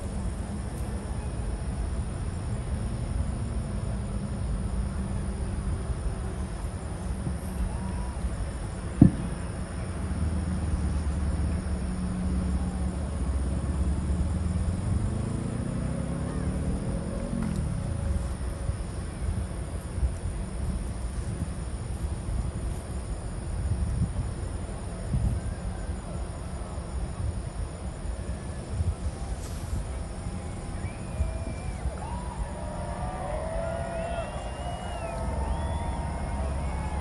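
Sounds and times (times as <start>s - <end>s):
crickets chirping: 0.0s - 37.0s
sharp thump: 9.0s - 9.3s.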